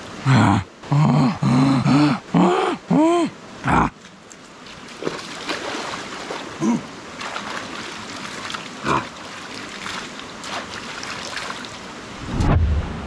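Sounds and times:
stream rushing: 0.0s - 13.0s
person grunting: 0.2s - 4.0s, 6.6s - 6.9s
water splashing: 4.6s - 12.4s.

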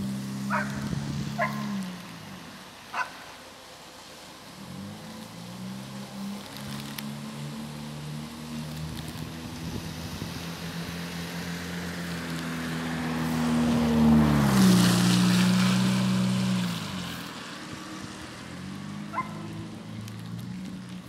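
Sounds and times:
funicular humming drone: 0.0s - 15.4s.

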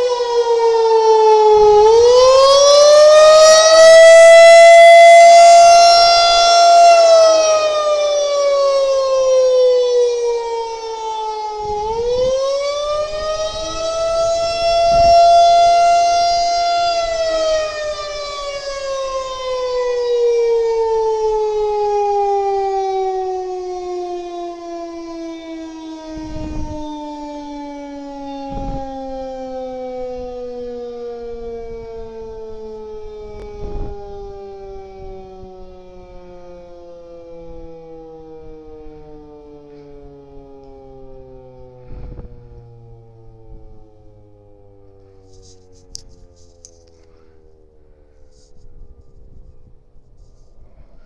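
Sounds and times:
rotating warning siren: 0.0s - 51.0s.

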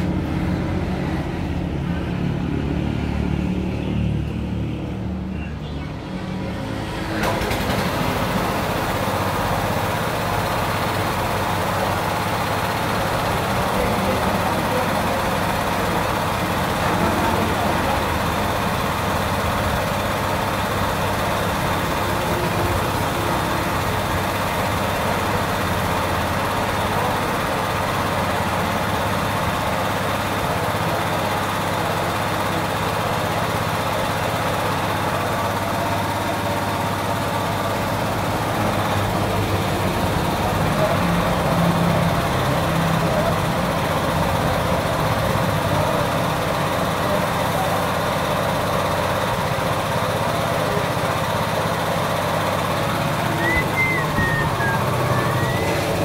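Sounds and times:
small petrol engine running: 0.0s - 56.0s.

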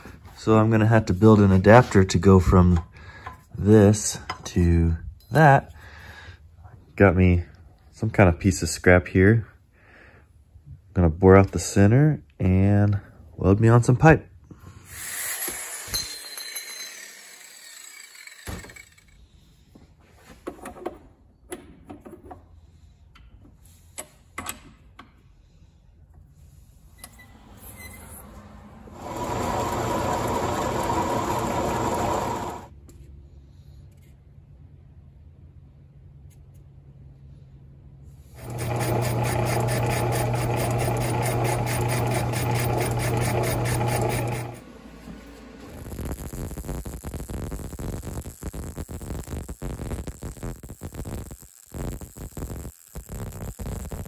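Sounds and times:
lathe tool cutting metal: 29.0s - 32.7s, 38.4s - 44.6s
metal lathe motor humming: 29.0s - 32.7s, 38.4s - 44.6s.

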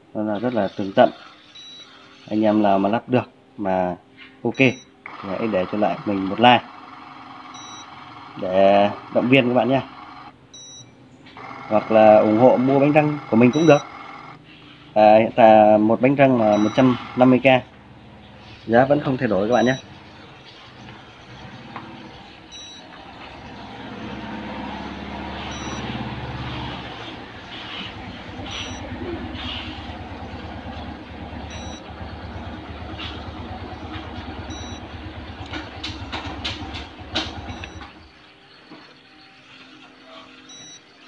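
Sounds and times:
short fridge beep: 1.6s - 1.9s, 4.6s - 4.9s, 7.5s - 7.9s, 10.6s - 11.0s, 13.4s - 14.0s, 16.5s - 17.2s, 19.6s - 19.9s, 22.5s - 22.9s, 25.4s - 26.0s, 28.5s - 28.9s, 31.5s - 31.8s, 34.5s - 34.9s, 37.5s - 38.0s, 40.5s - 40.9s
pump humming: 4.6s - 41.0s
clicks: 35.4s - 38.0s.

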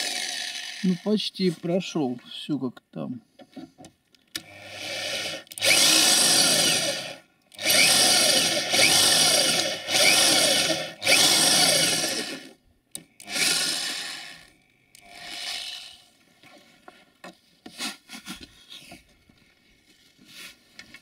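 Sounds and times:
electric drill boring into metal: 0.0s - 1.1s, 4.4s - 12.6s, 13.2s - 16.1s.

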